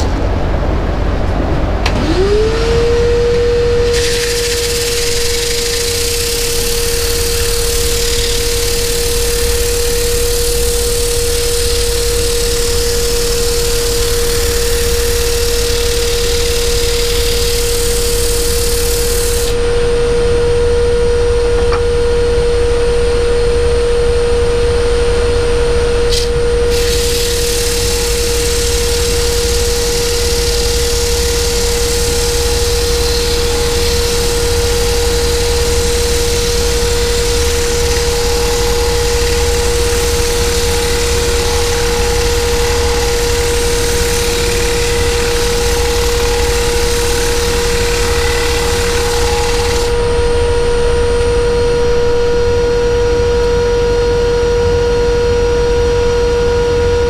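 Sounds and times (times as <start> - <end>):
wood lathe humming: 1.8 - 19.7, 26.1 - 51.4
turning tool cutting wood hiss: 3.4 - 19.6, 26.1 - 50.1.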